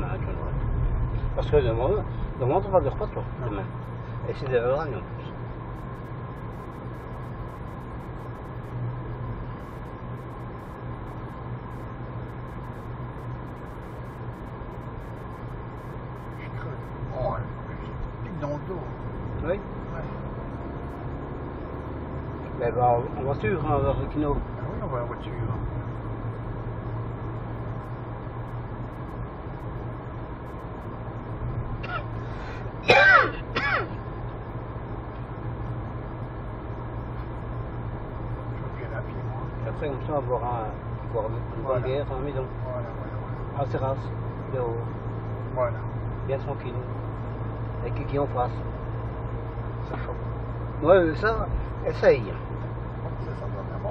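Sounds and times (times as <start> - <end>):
car engine hum: 0.0 - 53.9
tyre and road noise: 0.0 - 53.9
person clearing throat: 31.8 - 32.1, 32.8 - 34.0.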